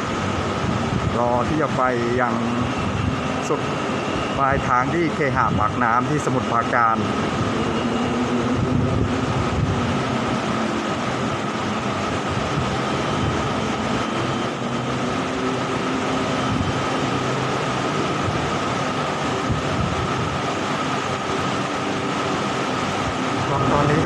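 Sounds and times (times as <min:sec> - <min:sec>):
steady high tone: 0:00.0 - 0:19.8, 0:22.4 - 0:24.0
electric train running: 0:06.3 - 0:24.0.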